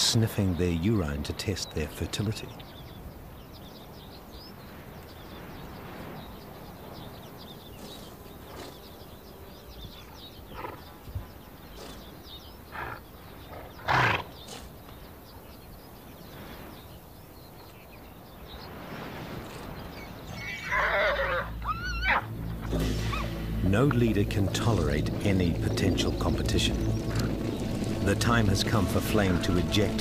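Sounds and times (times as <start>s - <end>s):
horse call: 20.4s - 22.3s.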